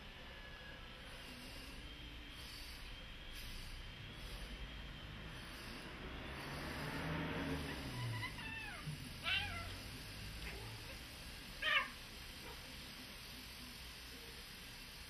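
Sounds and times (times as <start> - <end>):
cats meowing: 7.7 - 9.8, 10.4 - 12.0.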